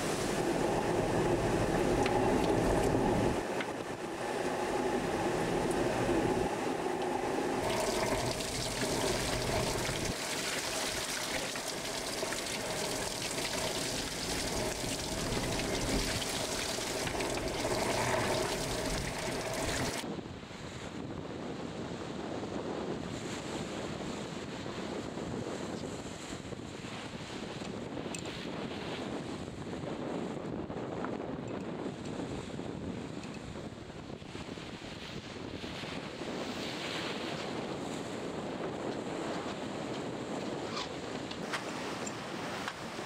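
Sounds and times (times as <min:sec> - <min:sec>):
steady hum: 0:00.0 - 0:20.0
water rushing past hull: 0:00.0 - 0:20.0
sea and wind wash: 0:00.0 - 0:43.0.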